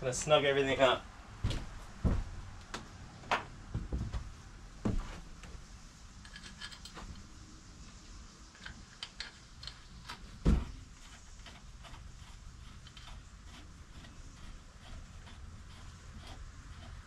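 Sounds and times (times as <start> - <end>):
heavy thump: 1.4 - 5.2, 10.4 - 10.9.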